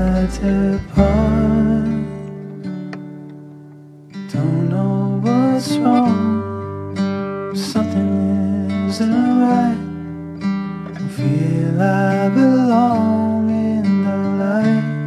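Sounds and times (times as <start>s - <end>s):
song with strummed acoustic guitar: 0.0s - 15.0s.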